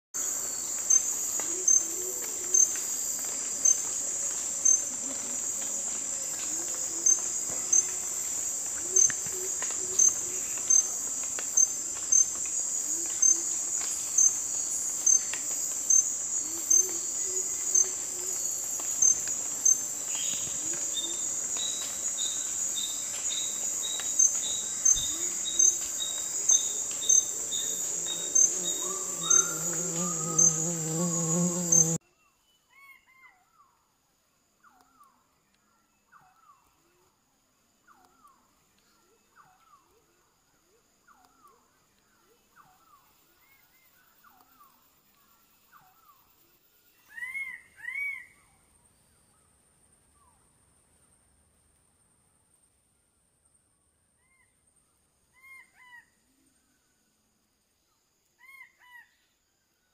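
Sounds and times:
insects buzzing and chirping: 0:00.2 - 0:32.0
lower short insect note: 0:21.0 - 0:32.0.

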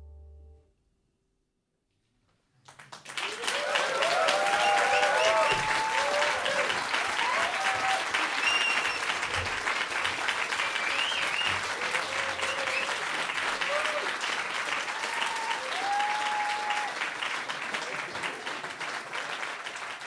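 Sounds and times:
audience applause: 0:02.6 - 0:20.0
crowd whooping and cheering: 0:03.2 - 0:09.4, 0:10.4 - 0:17.2.

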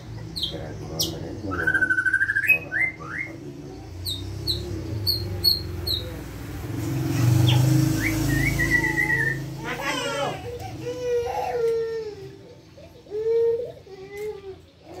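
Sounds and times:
songbird whistling: 0:01.0 - 0:03.4, 0:07.4 - 0:09.6.

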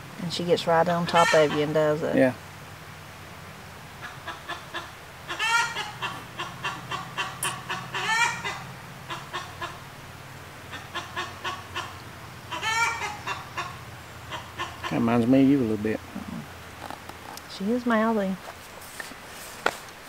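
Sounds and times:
hen clucking and cackling: 0:01.0 - 0:02.0, 0:04.0 - 0:15.2.

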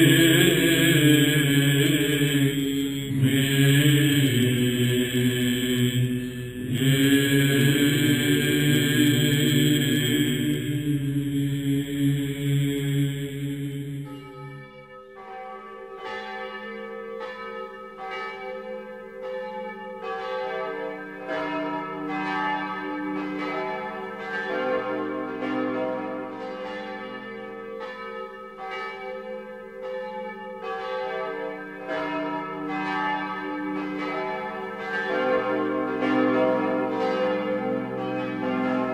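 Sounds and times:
church bells pealing: 0:00.0 - 0:38.9.

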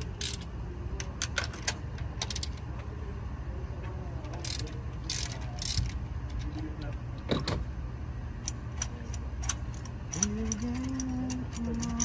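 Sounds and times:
ratchet wrench clicking: 0:00.0 - 0:00.5, 0:02.2 - 0:02.6, 0:04.4 - 0:06.5, 0:08.4 - 0:12.0.

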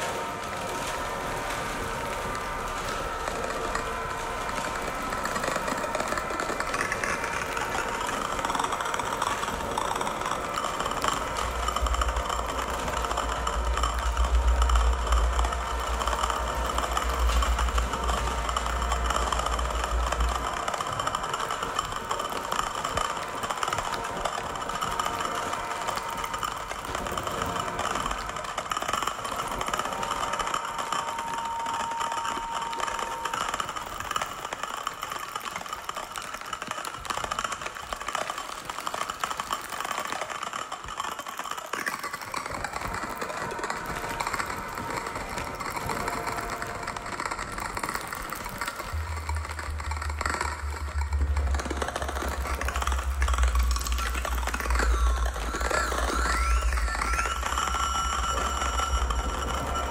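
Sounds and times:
crackling and rustling noise: 0:00.0 - 0:59.9
thin held tone: 0:45.6 - 0:59.9.

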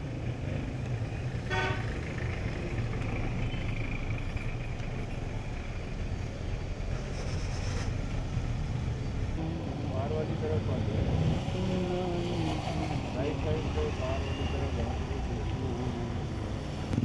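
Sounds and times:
traffic engines rumbling: 0:00.0 - 0:17.0
car horn toot: 0:01.5 - 0:01.8.

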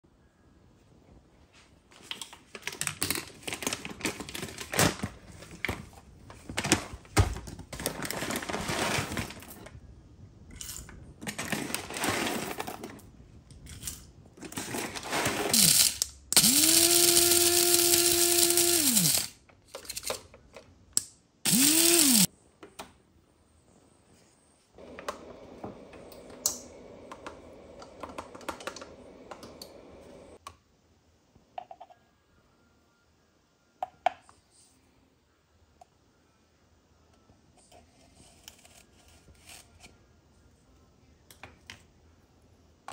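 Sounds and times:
quiet steady noise: 0:00.0 - 0:42.9
coffee beans rattling: 0:14.6 - 0:19.3
electric coffee grinder whining: 0:15.4 - 0:19.3, 0:21.5 - 0:22.3.

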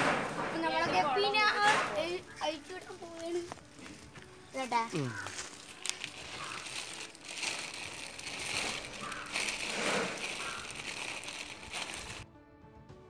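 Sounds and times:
plastic bag crinkling: 0:04.8 - 0:12.2.

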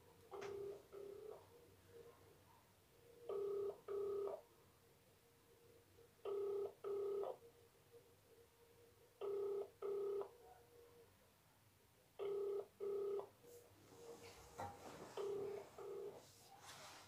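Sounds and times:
telephone ringback tone: 0:00.4 - 0:01.4, 0:03.3 - 0:04.4, 0:06.2 - 0:07.4, 0:09.2 - 0:10.3, 0:12.2 - 0:13.3, 0:15.2 - 0:16.2.

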